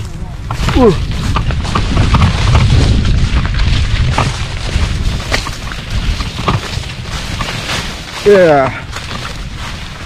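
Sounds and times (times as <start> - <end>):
wind buffeting microphone: 0.0 - 10.0
handling clicks and knocks: 0.4 - 7.6.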